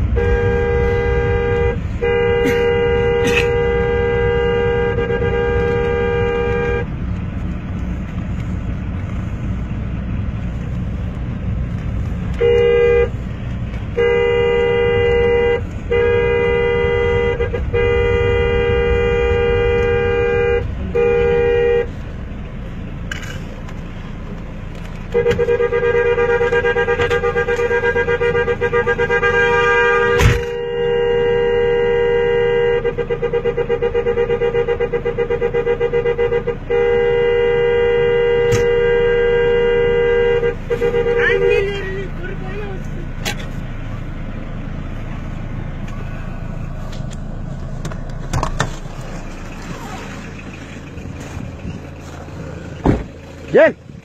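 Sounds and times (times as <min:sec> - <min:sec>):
car horn blasts: 0:00.0 - 0:08.6, 0:11.7 - 0:44.0
car engine and road rumble: 0:00.0 - 0:54.0.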